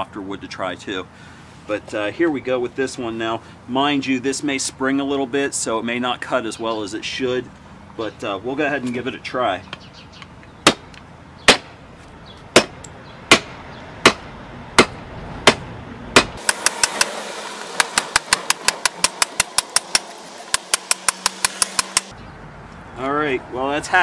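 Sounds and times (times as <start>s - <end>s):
shovel blade chopping wood: 16.2s - 22.1s.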